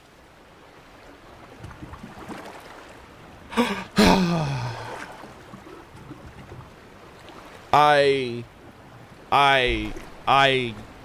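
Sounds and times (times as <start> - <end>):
man sighing: 3.5 - 5.1.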